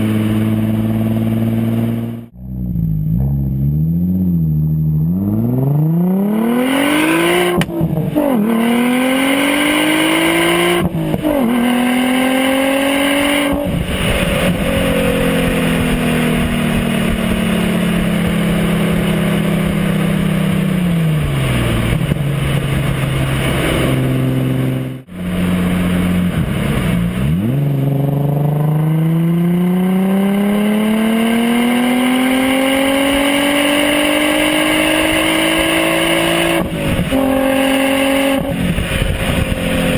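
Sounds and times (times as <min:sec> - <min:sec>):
car engine accelerating: 0:00.0 - 0:39.9.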